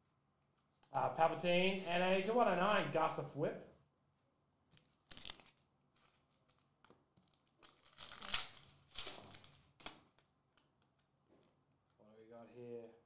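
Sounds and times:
foil wrapper crinkling: 4.7 - 11.0.

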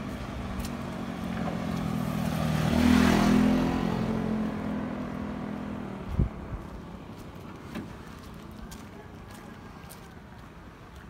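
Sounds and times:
vehicle passing by: 0.0 - 7.2.

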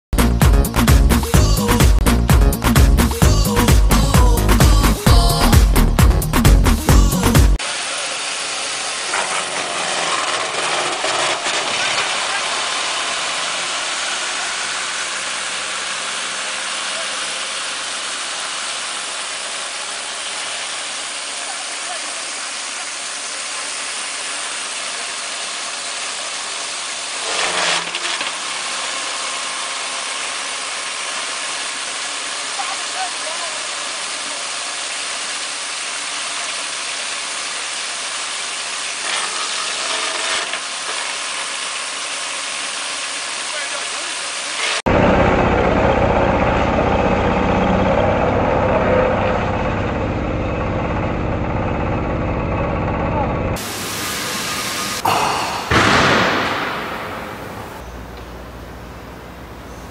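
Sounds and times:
hammer mill running: 3.2 - 59.7
diesel engine running: 44.9 - 59.9.

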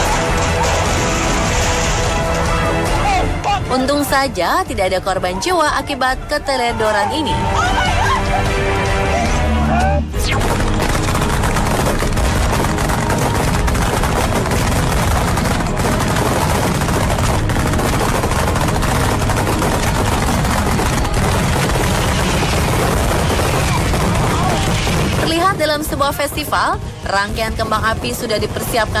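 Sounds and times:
fireworks bangs: 10.2 - 25.7.

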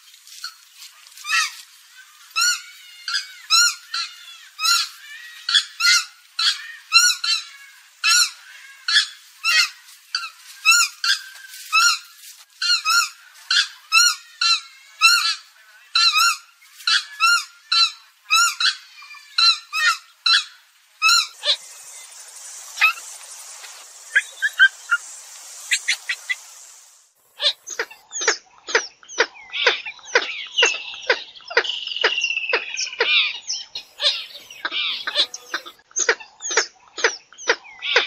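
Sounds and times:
bird calling: 1.0 - 28.3, 29.1 - 36.6.

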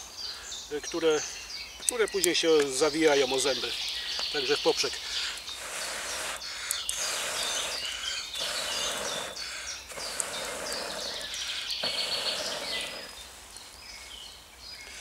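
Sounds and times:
songbirds chirping: 0.0 - 15.0
person blowing into stove: 5.5 - 13.1.

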